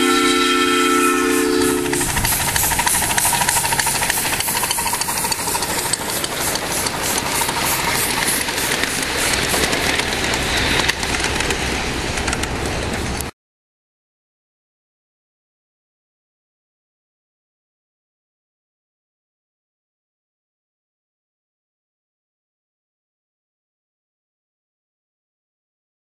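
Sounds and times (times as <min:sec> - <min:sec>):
steady steam hiss: 0:00.0 - 0:12.2
steam locomotive exhaust chuffs: 0:00.0 - 0:13.3
cars rolling on track: 0:01.6 - 0:13.3.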